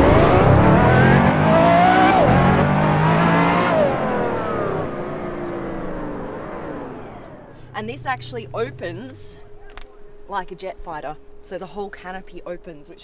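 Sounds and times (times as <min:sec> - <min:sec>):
car engine accelerating: 0:00.0 - 0:10.2.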